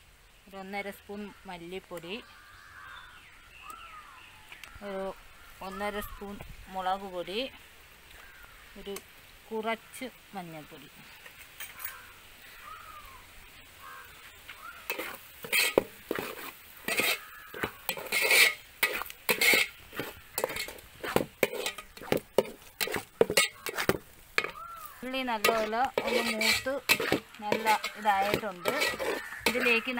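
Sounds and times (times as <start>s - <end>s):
onions frying in a pot: 3.7s - 29.9s
wooden spatula scraping a pot: 14.8s - 29.9s.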